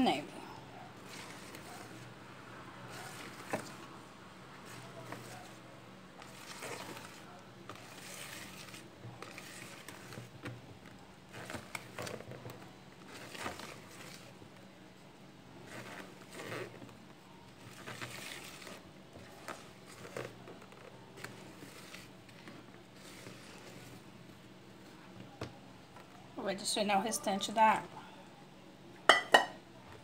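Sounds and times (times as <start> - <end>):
whisk swishing through batter: 6.2 - 10.4, 17.7 - 20.4.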